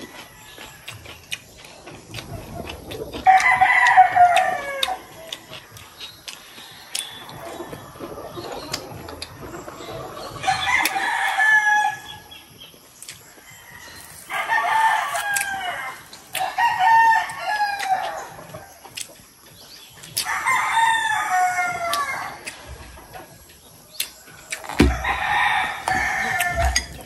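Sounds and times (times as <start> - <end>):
rooster crowing: 3.2 - 5.4, 10.3 - 12.3, 13.4 - 18.6, 20.2 - 22.4, 24.8 - 27.0.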